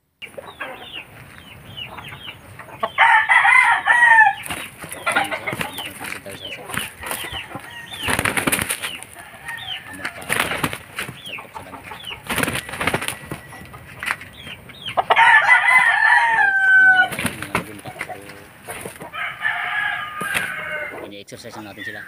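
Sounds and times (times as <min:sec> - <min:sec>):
rooster crowing: 0:02.8 - 0:05.8, 0:06.7 - 0:10.6, 0:12.5 - 0:13.8, 0:15.0 - 0:17.3, 0:19.0 - 0:21.0
rooster wings flapping: 0:03.6 - 0:11.3, 0:12.2 - 0:14.3, 0:16.9 - 0:19.2, 0:20.2 - 0:20.9.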